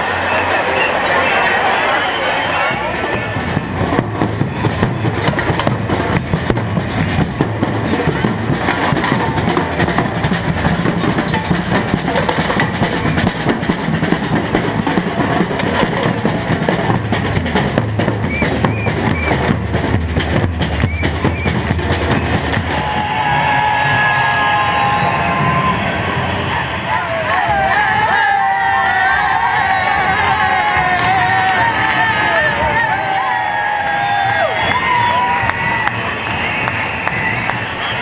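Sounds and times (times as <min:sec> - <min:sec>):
marching drums beating: 0:02.7 - 0:38.0.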